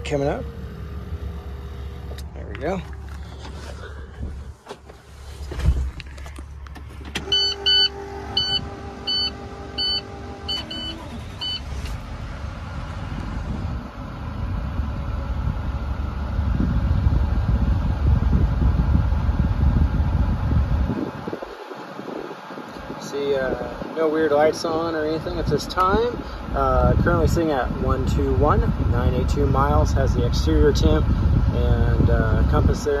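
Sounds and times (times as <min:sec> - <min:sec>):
diesel engine idling: 0:00.0 - 0:33.0
dashboard warning chime beeping: 0:07.2 - 0:11.7.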